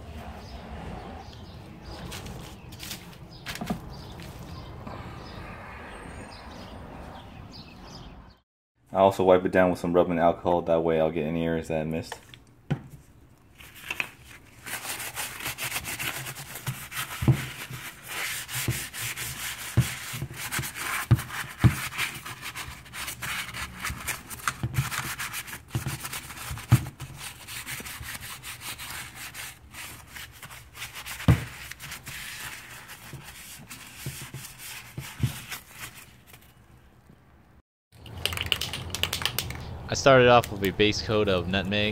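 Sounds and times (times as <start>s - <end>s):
paper towel rubbing on metal: 14.6s - 36.3s.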